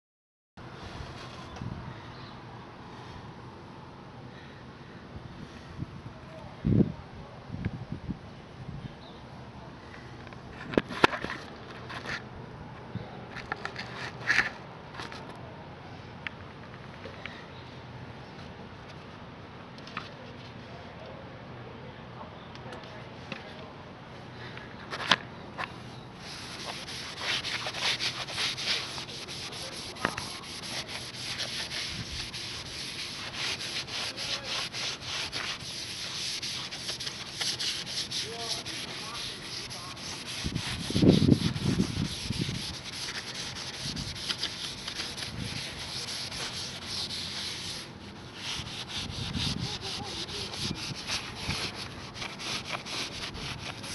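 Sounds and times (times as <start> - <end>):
sponge scrubbing metal plate: 26.2 - 53.9.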